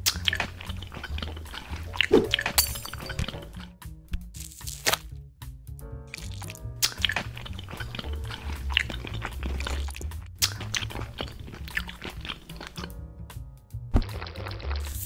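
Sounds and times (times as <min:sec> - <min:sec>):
crisp clicks and crunching: 0:00.0 - 0:05.1, 0:06.1 - 0:12.9
background music with low bass: 0:00.0 - 0:15.0.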